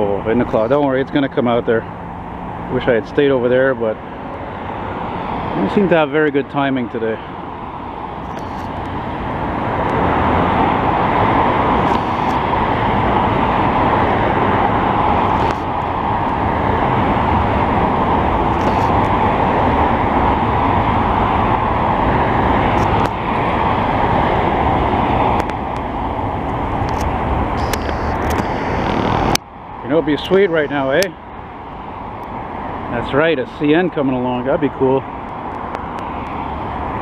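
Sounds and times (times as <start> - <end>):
cars passing on highway: 0.0 - 37.0
freight train running by: 8.8 - 28.6, 29.7 - 36.0.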